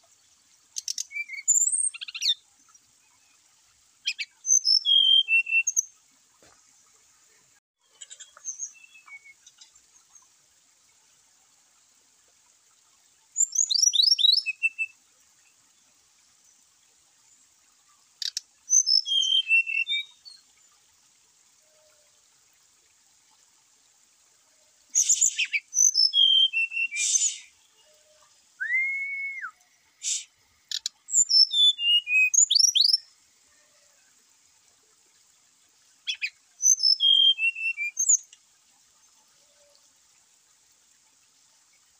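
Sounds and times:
bird whistled song: 0.8s - 2.4s, 4.1s - 5.8s, 13.4s - 15.0s, 18.3s - 20.4s, 25.0s - 27.5s, 28.6s - 33.0s, 36.1s - 38.2s.

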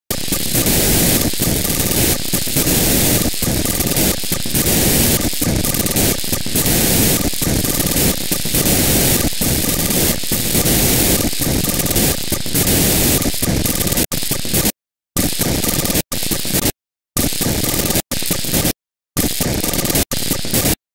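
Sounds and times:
harsh static-like data signal hiss: 0.1s - 20.8s.

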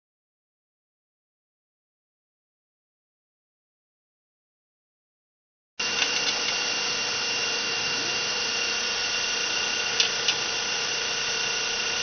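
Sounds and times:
low machinery hum: 5.8s - 12.0s
machinery hiss with high whine: 5.8s - 12.0s.

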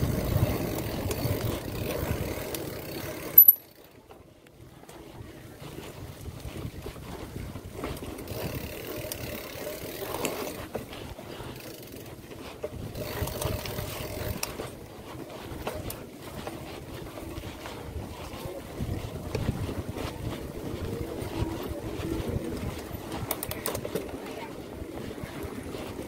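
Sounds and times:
wind rushing over microphone: 0.0s - 2.5s, 5.2s - 8.8s, 16.8s - 26.0s
bike clicks and rattles: 0.0s - 26.0s
bike tyres rumbling on dirt trail: 0.0s - 26.0s.

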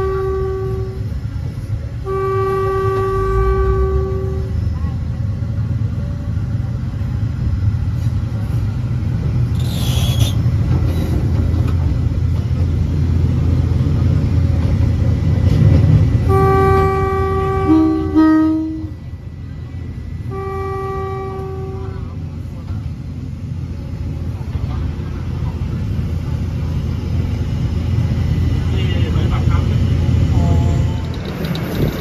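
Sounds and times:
train horn blasts: 0.0s - 1.2s, 2.0s - 4.8s, 16.2s - 19.1s, 20.1s - 22.2s
train rumbling: 0.0s - 32.0s.

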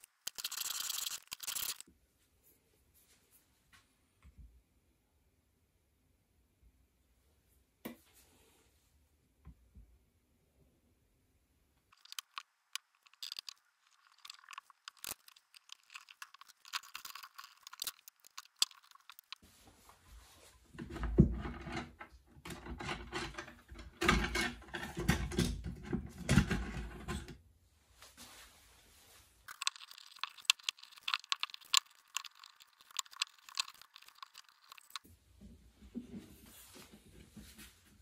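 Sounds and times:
crackly scratching and clicks: 0.0s - 1.9s, 11.9s - 19.4s, 29.5s - 35.1s
wooden knocks and rattles: 20.8s - 27.3s.

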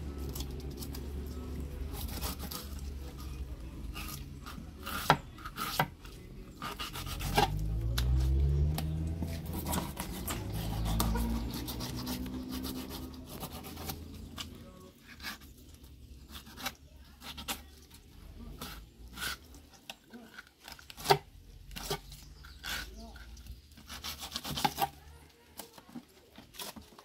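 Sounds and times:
knife scraping fish: 1.9s - 6.0s, 6.6s - 7.6s, 9.4s - 15.6s.

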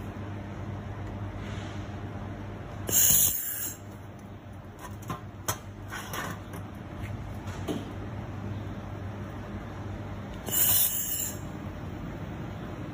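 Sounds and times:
machine low hum: 0.0s - 12.9s
laser welder hiss: 2.9s - 3.8s, 10.5s - 11.5s.

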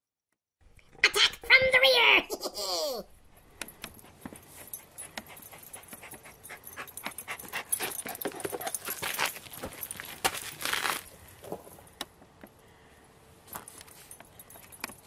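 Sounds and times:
dog panting: 3.7s - 9.4s.

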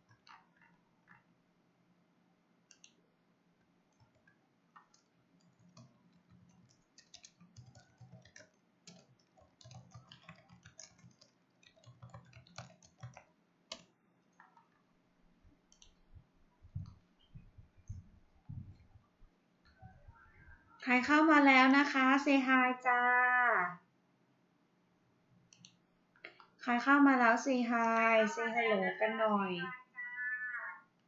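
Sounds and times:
mouse and keyboard clicks: 2.7s - 3.0s, 3.9s - 14.8s, 15.7s - 16.0s, 25.5s - 26.5s.

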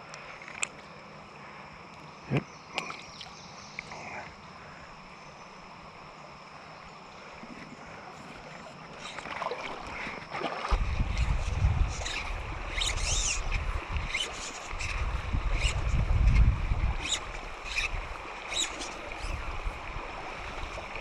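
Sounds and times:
steady background hiss: 0.0s - 21.0s
wind buffeting microphone: 10.7s - 18.3s.

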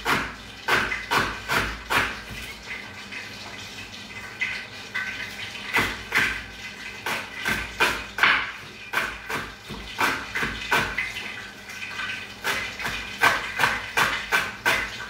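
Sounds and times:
knife chopping on wooden board: 0.0s - 2.5s, 7.0s - 11.1s, 12.4s - 15.0s.

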